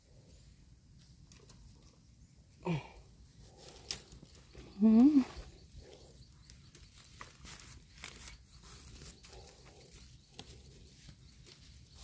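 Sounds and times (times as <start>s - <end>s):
rustles and clicks of handling: 3.5s - 12.0s.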